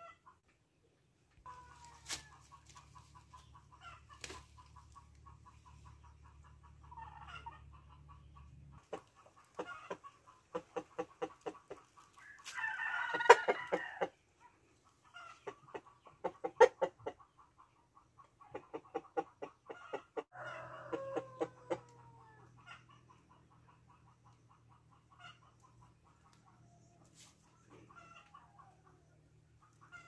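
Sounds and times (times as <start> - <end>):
chickens clucking: 0.0 - 30.0.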